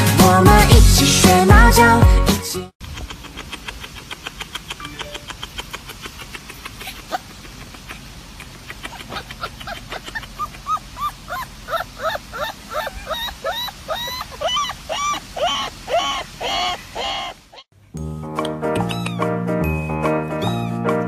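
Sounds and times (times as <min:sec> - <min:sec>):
puppy yelping: 0:02.9 - 0:17.7, 0:18.8 - 0:19.4, 0:20.4 - 0:21.0.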